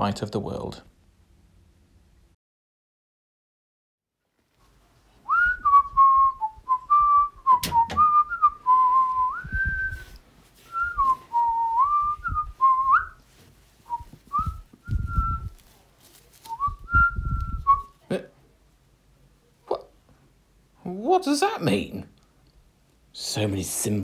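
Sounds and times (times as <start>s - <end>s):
person whistling a tune: 5.3s - 10.1s, 10.7s - 13.2s, 13.9s - 15.5s, 16.5s - 17.9s
low thumps: 7.0s - 10.0s, 10.8s - 13.1s, 13.9s - 15.6s.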